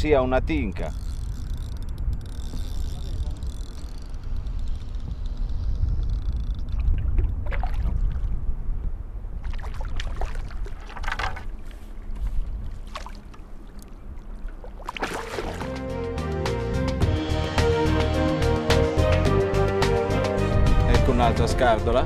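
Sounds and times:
fish splashing in water: 9.4 - 11.6, 12.7 - 15.7.

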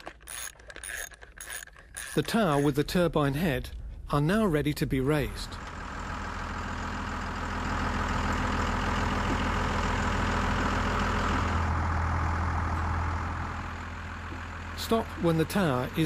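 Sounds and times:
vehicle engine under load: 5.2 - 16.0.

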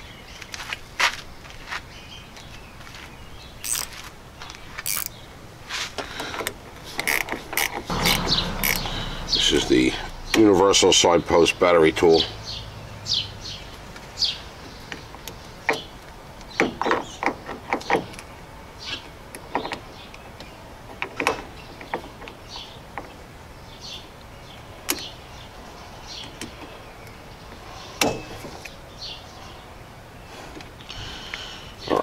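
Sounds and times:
wrench metal clicks: 3.6 - 3.9, 4.8 - 5.2, 6.3 - 8.9.

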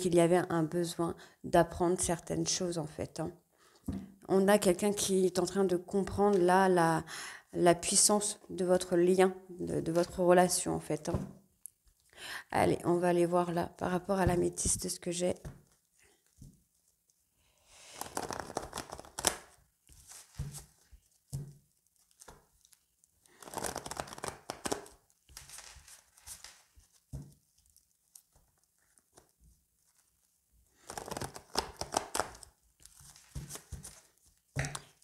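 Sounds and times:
cards shuffled rustling: 17.9 - 22.8, 23.4 - 27.4, 30.8 - 35.0.

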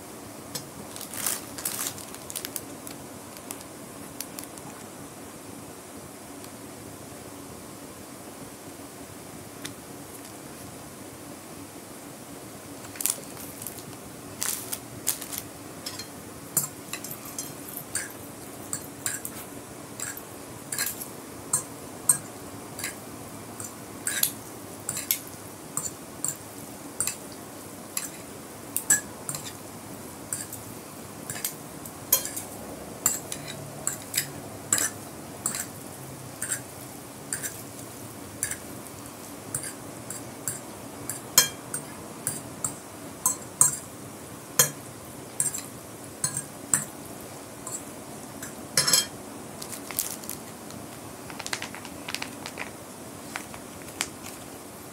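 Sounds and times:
faint steady hum: 0.0 - 54.9
fork and spoon clinking on glass plate: 15.8 - 19.4, 20.0 - 23.0, 24.1 - 25.2, 32.1 - 32.5, 33.1 - 35.7, 40.5 - 43.8, 45.4 - 46.9, 48.4 - 49.1.

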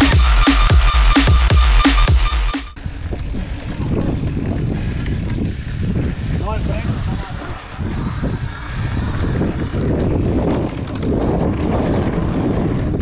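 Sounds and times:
bike rumbling on dirt trail: 2.8 - 13.0
wind buffeting microphone: 2.8 - 13.0.

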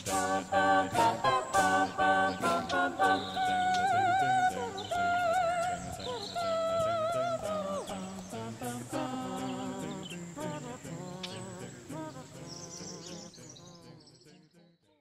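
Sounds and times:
background music: 0.0 - 11.8.

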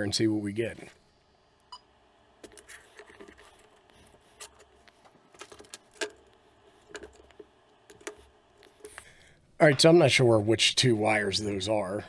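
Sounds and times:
hands handling cable clicks: 2.4 - 9.1.

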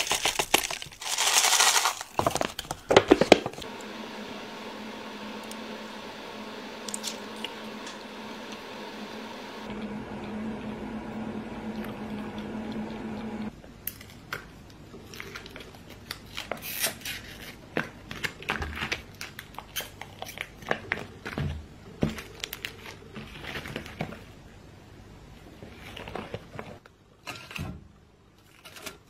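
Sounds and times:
plastic wrappers crinkling and tearing: 0.0 - 3.6, 15.0 - 21.4, 22.1 - 24.3
steady low hum: 3.6 - 13.5.

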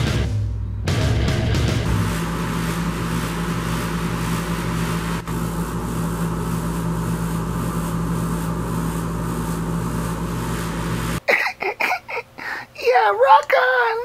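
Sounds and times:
mechanical hum with hiss: 1.9 - 11.3.

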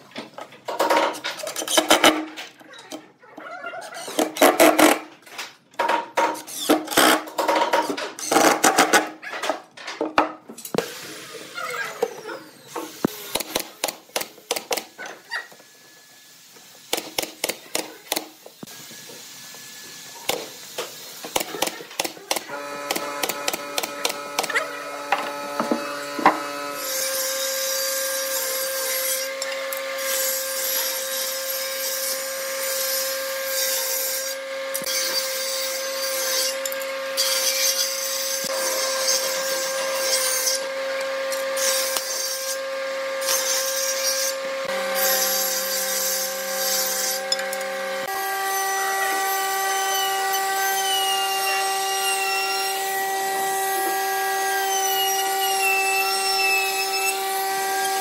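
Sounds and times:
table saw motor humming: 10.7 - 17.0, 17.9 - 58.0.

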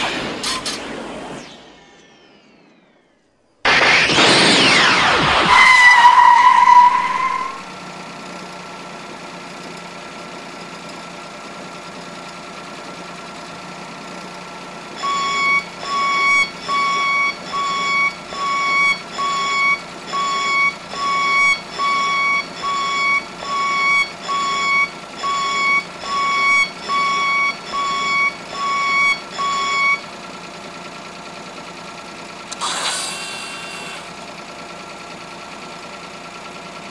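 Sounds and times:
loud electronic whine: 0.0 - 7.8, 32.5 - 34.2
repeating electronic beep: 15.0 - 30.0, 32.5 - 34.2.

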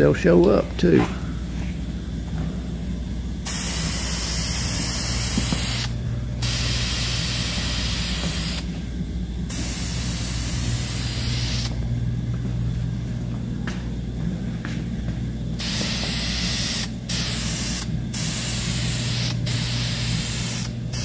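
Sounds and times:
aerosol can spraying: 4.9 - 8.6.

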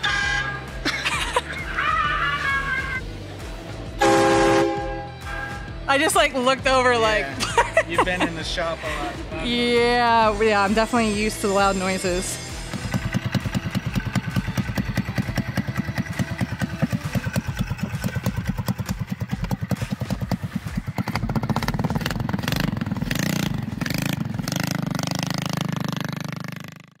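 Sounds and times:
small gas engine chugging: 10.9 - 26.9.

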